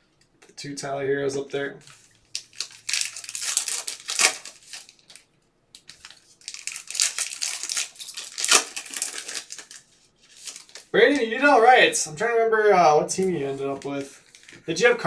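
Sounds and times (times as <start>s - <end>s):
foil wrapper crinkling and tearing: 1.9s - 11.3s, 13.3s - 14.7s.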